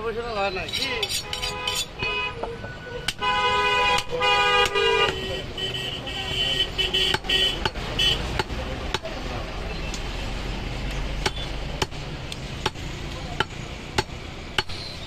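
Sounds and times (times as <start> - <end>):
traffic rumbling: 0.0 - 15.0
vehicle horn: 1.2 - 8.2
cleaver chopping meat and bone: 7.1 - 9.2, 10.9 - 14.9.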